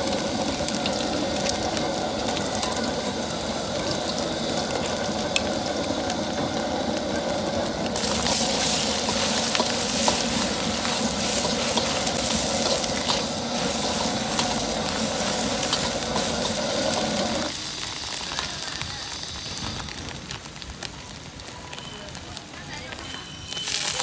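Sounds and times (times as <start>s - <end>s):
egg sizzling in oil: 0.0s - 21.9s, 22.9s - 24.0s
metal spatula scraping wok: 8.0s - 17.5s.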